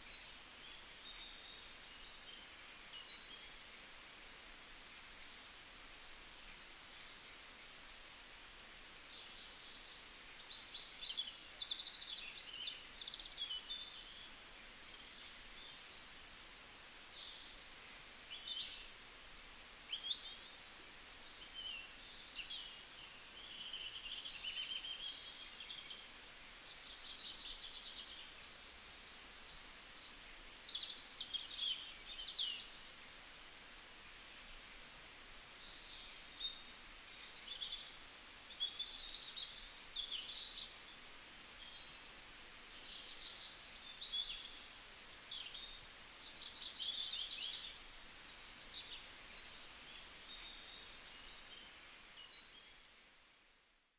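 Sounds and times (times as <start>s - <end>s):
small birds chirping and singing: 0.0s - 53.6s
faint steady hiss: 0.0s - 53.9s.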